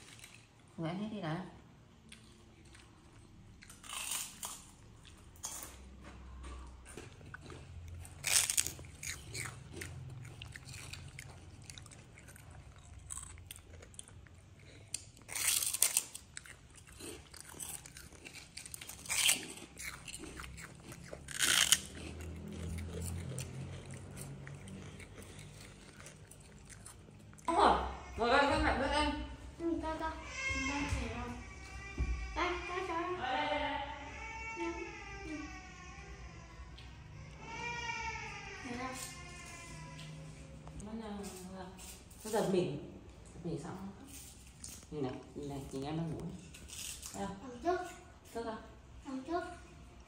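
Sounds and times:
monkey crunching a cracker: 0:02.0 - 0:27.5, 0:44.1 - 0:47.9.

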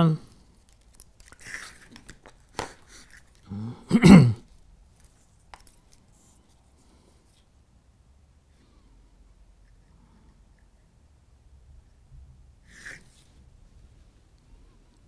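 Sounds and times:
man clearing his throat: 0:03.5 - 0:04.5.

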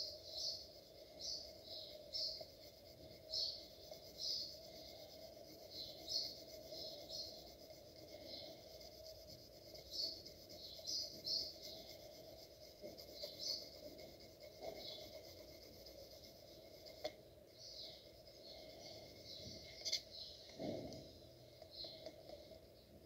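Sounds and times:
pencil scratching on paper: 0:00.0 - 0:20.1.

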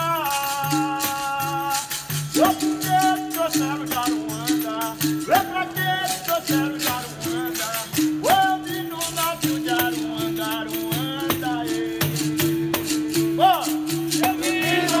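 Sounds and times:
basket rattle shaking: 0:00.0 - 0:15.0
man singing: 0:00.0 - 0:15.0
tambourine jingles: 0:00.0 - 0:15.0.

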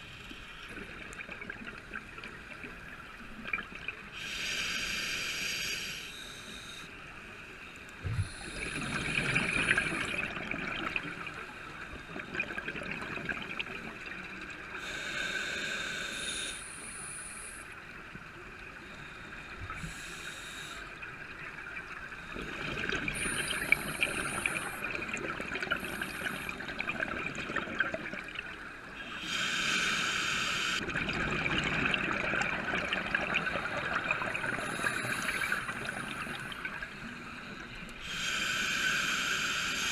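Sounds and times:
regulator hissing inhale: 0:04.2 - 0:07.0, 0:08.1 - 0:10.2, 0:14.8 - 0:17.8, 0:18.8 - 0:21.0, 0:23.2 - 0:25.0, 0:25.7 - 0:26.6, 0:29.0 - 0:30.8, 0:34.4 - 0:39.9
exhaled air bubbling: 0:08.0 - 0:14.3, 0:21.2 - 0:29.3, 0:30.8 - 0:37.1.

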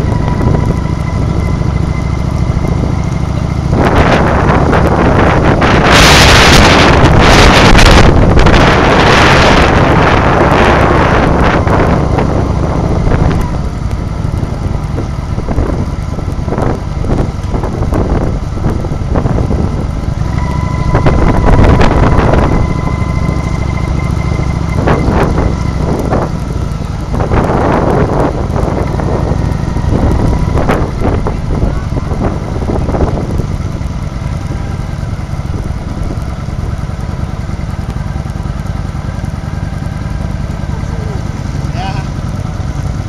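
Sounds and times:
wind buffeting microphone: 0:00.0 - 0:41.6
motorcycle engines running: 0:00.0 - 0:43.0
steady high-pitched tone: 0:20.2 - 0:26.0.

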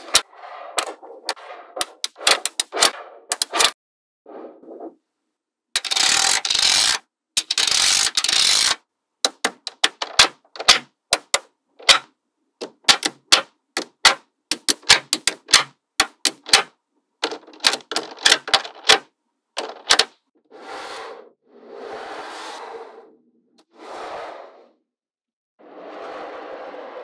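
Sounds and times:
magnetic balls clicking into place: 0:00.8 - 0:03.7, 0:05.8 - 0:20.2
magnetic balls rattling: 0:05.8 - 0:19.0, 0:19.6 - 0:20.2.

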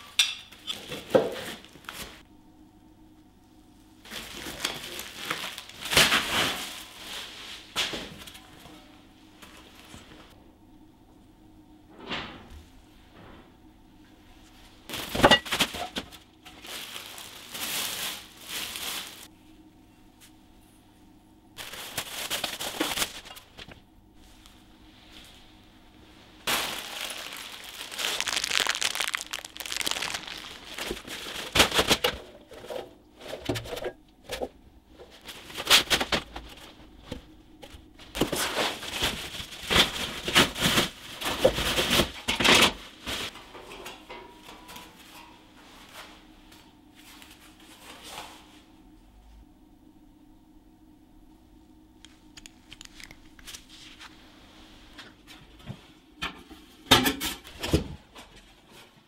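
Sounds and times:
bubble wrap crinkling: 0:04.0 - 0:07.7, 0:14.9 - 0:19.3, 0:21.6 - 0:23.6, 0:26.4 - 0:32.1, 0:38.1 - 0:42.2.

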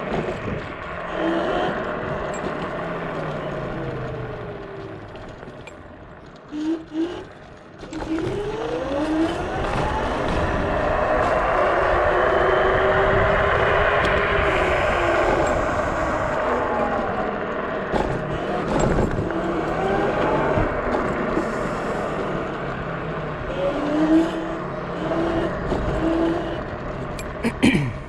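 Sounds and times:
wind rushing over microphone: 0:00.0 - 0:05.6, 0:07.9 - 0:27.4
electric scooter motor whining: 0:01.0 - 0:27.2.

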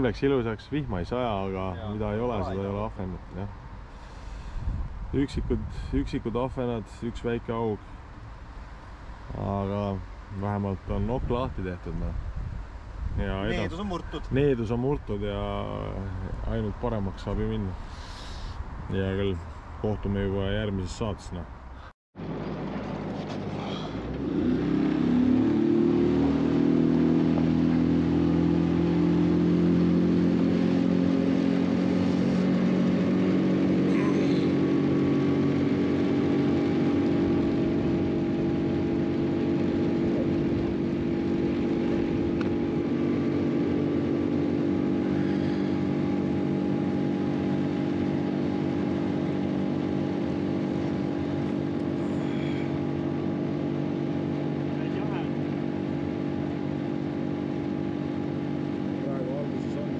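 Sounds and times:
outboard motor running: 0:22.2 - 0:59.9.

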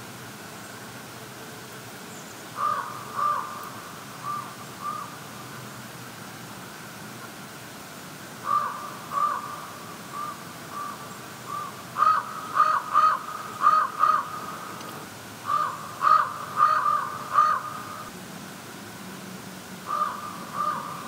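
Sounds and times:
crow cawing: 0:02.6 - 0:05.2, 0:08.4 - 0:18.1, 0:19.9 - 0:21.0.

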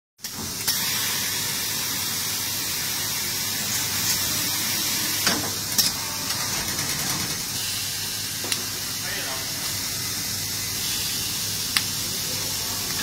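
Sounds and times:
welding machine hiss: 0:00.2 - 0:13.0
sharp machine clicks: 0:06.3 - 0:07.5.

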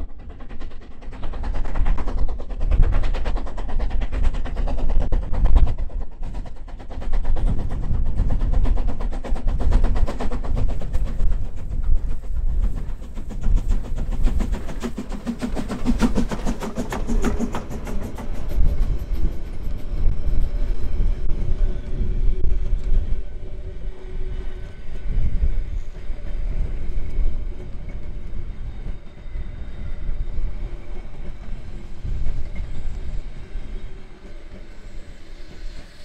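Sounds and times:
coach wheels clattering on track: 0:00.0 - 0:21.1
steam locomotive exhaust beats: 0:00.0 - 0:36.0.

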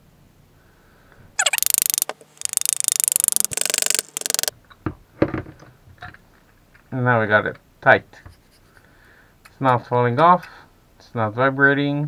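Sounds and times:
rapid ratchet-like clicking: 0:01.4 - 0:04.5.

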